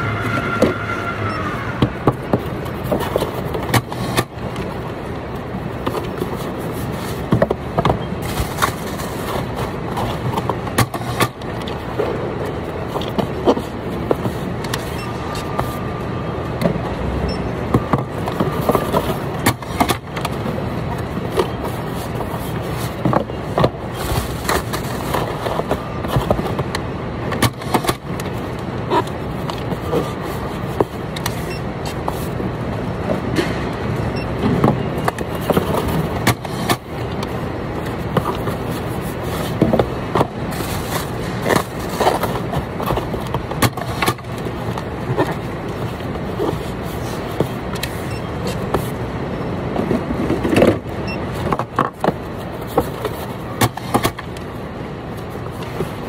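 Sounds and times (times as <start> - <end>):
machinery hum: 0.0 - 56.0
cardboard boxes knocking and scraping: 5.8 - 11.6, 17.6 - 26.7, 27.3 - 32.4, 34.4 - 37.3, 37.9 - 49.0, 49.7 - 54.4.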